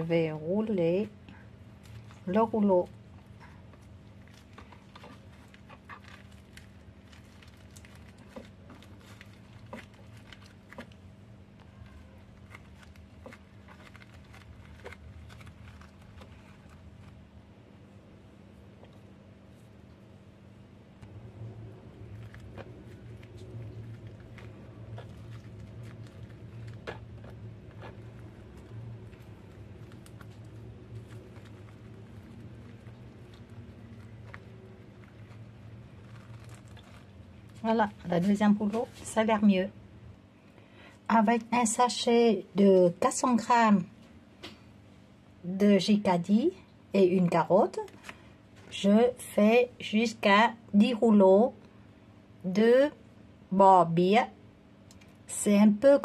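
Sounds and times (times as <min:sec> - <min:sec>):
hands rolling rice paper on mat: 0:00.0 - 0:17.4, 0:21.0 - 0:39.5
steady low hum: 0:00.0 - 0:56.0.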